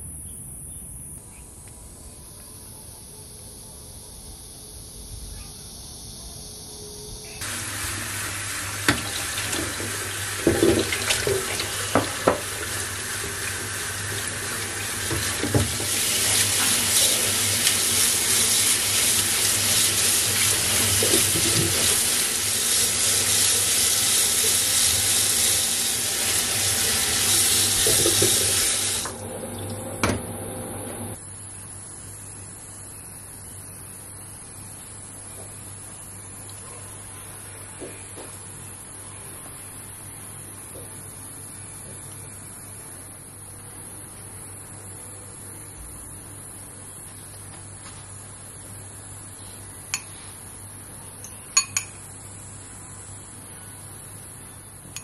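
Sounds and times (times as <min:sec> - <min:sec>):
tap running into metal sink: 0:08.8 - 0:13.6, 0:15.0 - 0:16.4, 0:26.3 - 0:29.0.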